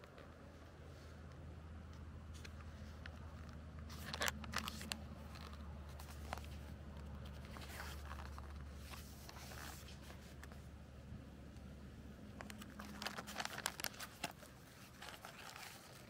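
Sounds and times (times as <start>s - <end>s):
packaging rustling and crinkling: 2.4s - 10.6s, 12.3s - 16.0s
packaging tearing open: 4.0s - 5.6s, 12.4s - 16.0s.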